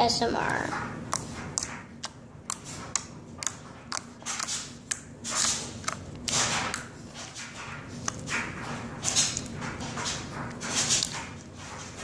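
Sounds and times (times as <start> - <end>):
slime squelching: 0.0 - 12.0
slime clicking and popping: 1.1 - 6.8.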